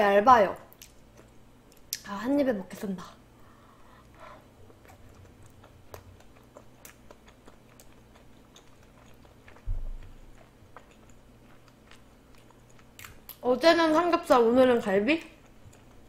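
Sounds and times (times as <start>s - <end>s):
person chewing: 0.7s - 2.0s, 3.5s - 13.4s, 15.3s - 16.0s.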